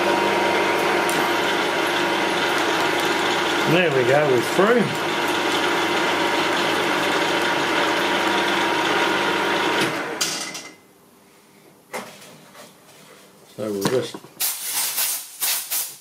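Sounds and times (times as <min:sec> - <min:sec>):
milling machine motor whine: 0:00.0 - 0:10.2.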